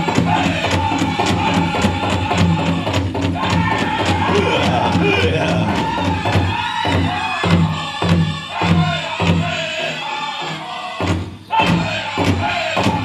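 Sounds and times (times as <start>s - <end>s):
big drum beating: 0.0s - 9.6s
group singing in chorus: 0.0s - 13.0s.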